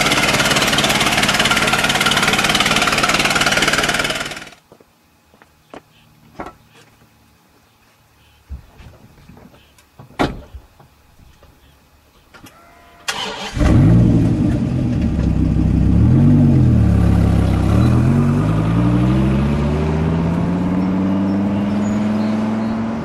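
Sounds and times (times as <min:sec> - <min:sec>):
car engine starting and revving: 0:13.1 - 0:23.0.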